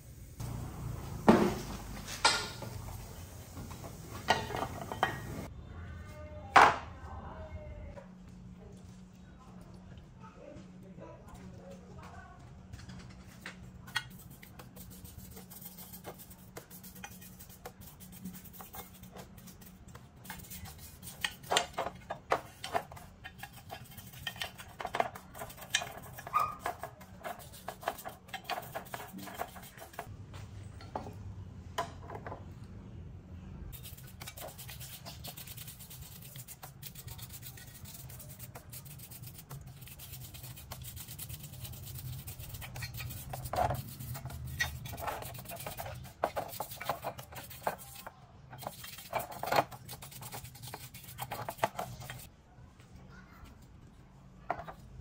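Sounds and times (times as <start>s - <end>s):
steady low hum: 0.0s - 5.8s
rubbing and scraping: 12.8s - 30.1s, 33.7s - 52.3s.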